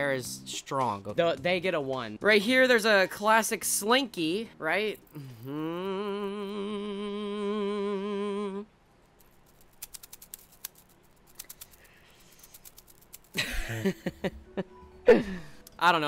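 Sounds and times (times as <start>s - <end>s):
person singing wavering note: 5.5s - 8.7s
plastic slinky rattling: 9.2s - 13.4s
person laughing: 13.3s - 15.6s.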